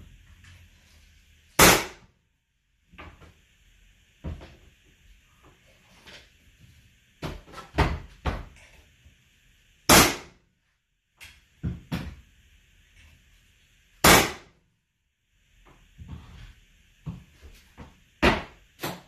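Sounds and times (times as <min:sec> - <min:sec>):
nailer loud sharp shot: 0:01.6 - 0:02.0, 0:09.9 - 0:10.3, 0:14.0 - 0:14.5.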